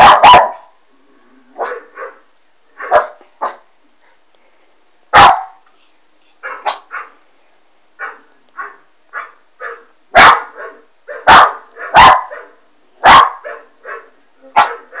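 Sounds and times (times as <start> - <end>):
puppy barking: 0.0 - 0.7, 1.6 - 2.2, 2.8 - 3.6, 5.2 - 5.6, 6.4 - 7.2, 8.0 - 15.0.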